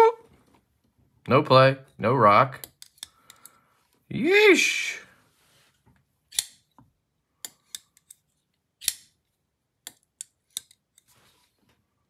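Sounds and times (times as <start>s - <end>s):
folding knife metallic clicks: 6.3s - 6.6s, 8.8s - 9.1s.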